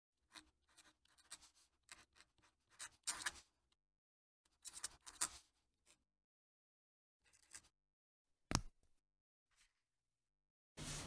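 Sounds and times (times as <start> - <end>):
pen nib scratching on paper: 0.3 - 3.4.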